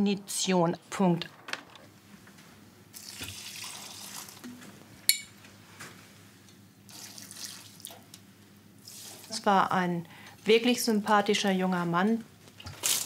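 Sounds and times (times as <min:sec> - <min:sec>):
water pouring into plant pots: 0:03.0 - 0:04.4, 0:06.9 - 0:07.9.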